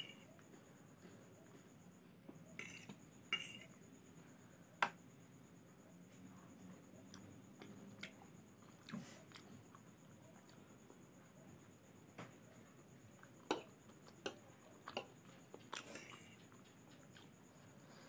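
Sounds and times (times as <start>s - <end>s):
fork clinking and scraping on plate: 2.6s - 3.7s
quiet chewing: 6.1s - 11.0s, 13.1s - 18.0s.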